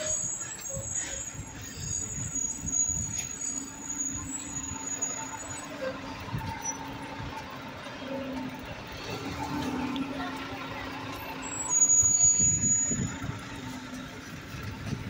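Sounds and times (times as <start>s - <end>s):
thin high squeal: 0.0s - 6.0s, 11.4s - 13.3s.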